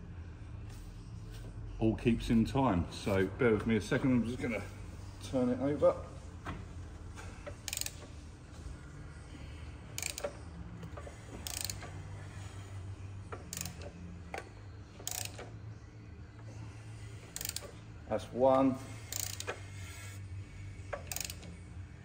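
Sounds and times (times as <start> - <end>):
hand ratchet clicking: 7.4 - 8.1, 10.0 - 12.0, 13.4 - 14.4, 15.0 - 15.5, 17.2 - 17.8, 19.1 - 20.1, 20.9 - 21.6.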